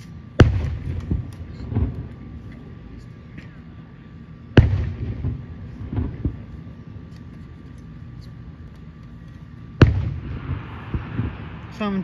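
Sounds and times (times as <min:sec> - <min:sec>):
faint firework thumps: 0:04.6 - 0:07.4, 0:09.8 - 0:12.0.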